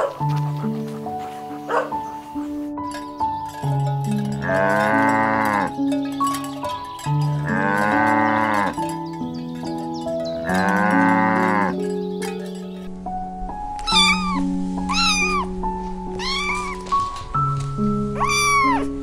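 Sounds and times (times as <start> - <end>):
plucked background music: 0.0 - 19.0
cow mooing: 4.3 - 6.0, 7.2 - 9.0, 10.4 - 11.9.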